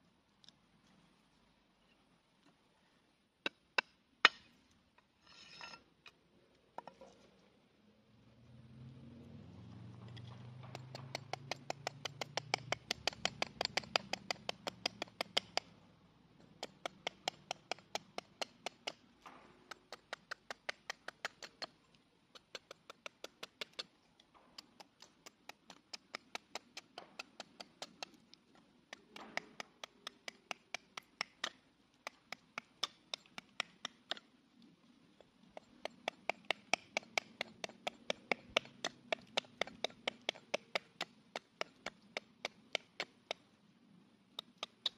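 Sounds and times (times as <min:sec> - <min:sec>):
hatchet chopping a stick: 0:03.4 - 0:04.6, 0:10.2 - 0:15.7, 0:16.6 - 0:21.8, 0:22.4 - 0:23.9, 0:24.6 - 0:28.3, 0:28.9 - 0:34.2, 0:35.6 - 0:43.4.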